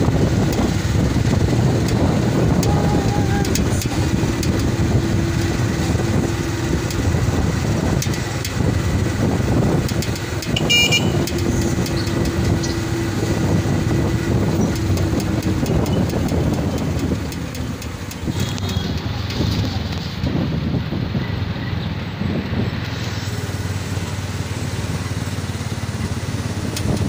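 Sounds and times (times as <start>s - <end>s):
vehicle engine and road noise: 0.0s - 27.0s
high-pitched horn toot: 10.6s - 11.3s.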